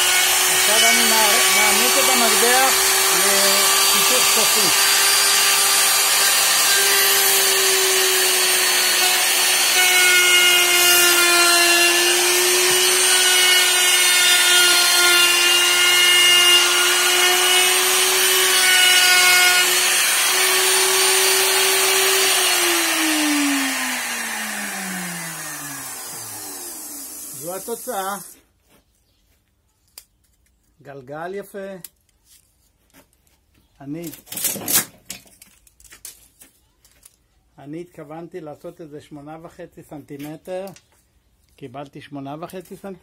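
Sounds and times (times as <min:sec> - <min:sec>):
wood router cutting: 0:00.0 - 0:28.4.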